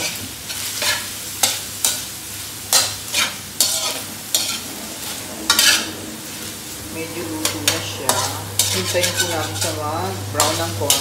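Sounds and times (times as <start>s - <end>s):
metal spatula scraping a wok: 0.0s - 2.1s, 2.7s - 11.0s
meat sizzling in oil: 0.0s - 11.0s.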